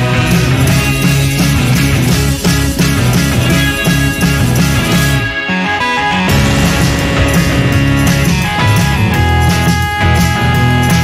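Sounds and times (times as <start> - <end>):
rock music with pulsing beat: 0.0 - 11.0.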